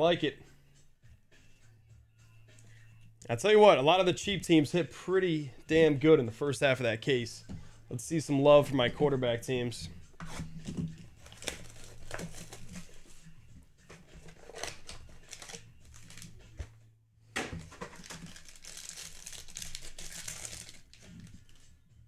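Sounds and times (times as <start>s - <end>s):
foil pack tearing open: 11.2s - 13.0s, 14.2s - 16.4s, 17.6s - 21.6s
foil pack crinkling: 11.2s - 13.1s, 14.2s - 16.4s, 17.6s - 21.6s.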